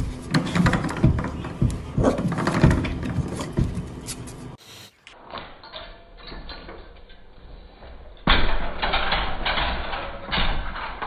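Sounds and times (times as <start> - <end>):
metal baby gate rattling: 0.3 - 3.8, 8.2 - 11.0.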